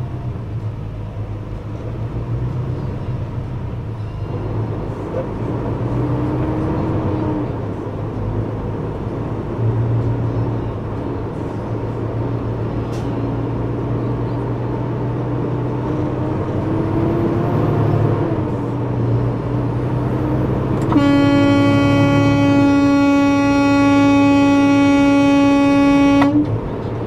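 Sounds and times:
road noise inside cab: 0.0s - 27.0s
truck diesel engine drone: 0.0s - 27.0s
truck air horn blaring: 20.6s - 26.6s.

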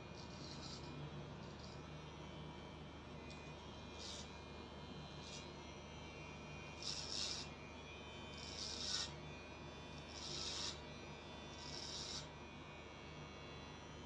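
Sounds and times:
electric hair clipper running: 0.0s - 2.0s, 3.2s - 4.3s, 5.2s - 5.5s, 6.6s - 12.4s.

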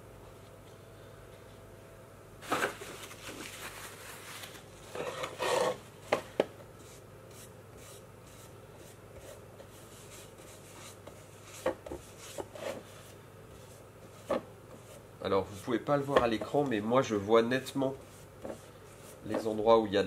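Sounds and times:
scrape on wood: 4.9s - 5.8s, 6.8s - 16.5s, 17.9s - 19.5s
pad rubbing on wood: 17.9s - 19.5s.

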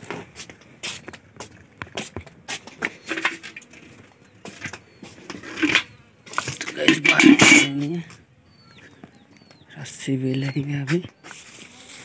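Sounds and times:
footsteps: 0.0s - 8.2s
household items clattering: 3.0s - 3.9s, 5.3s - 7.8s.

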